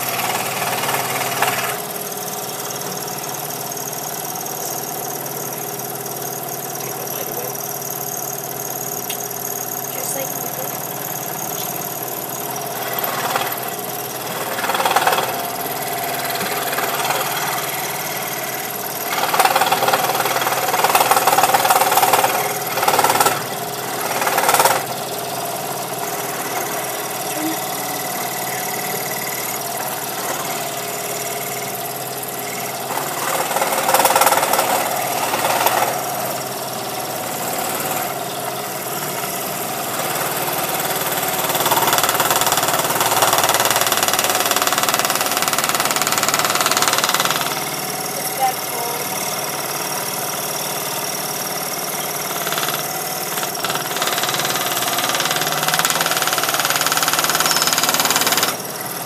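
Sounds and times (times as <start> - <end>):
scroll saw cutting wood: 0.0 - 3.6, 8.8 - 50.1.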